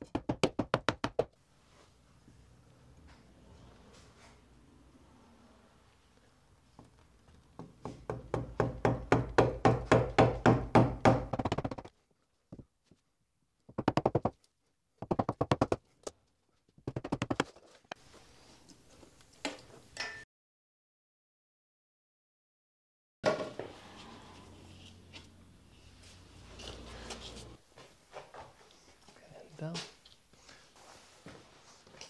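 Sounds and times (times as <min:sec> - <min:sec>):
mallet striking wood chisel: 0:07.6 - 0:11.8.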